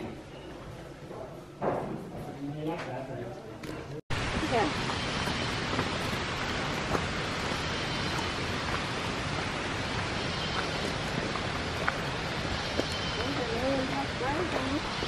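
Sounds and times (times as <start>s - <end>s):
rushing water: 4.1s - 15.0s.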